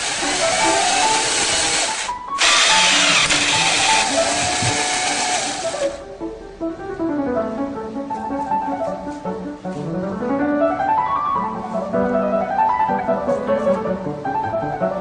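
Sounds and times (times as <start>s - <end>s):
motor whirring loudly: 0.0s - 6.0s
piano music: 0.0s - 15.0s.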